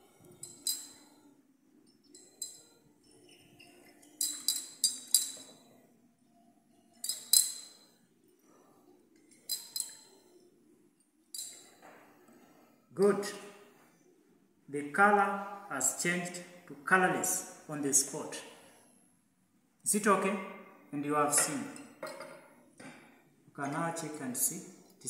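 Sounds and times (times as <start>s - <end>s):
glass flask clinking: 0.3s - 1.1s, 2.0s - 5.7s, 6.9s - 7.9s, 9.3s - 10.2s, 11.3s - 11.8s, 21.3s - 23.0s.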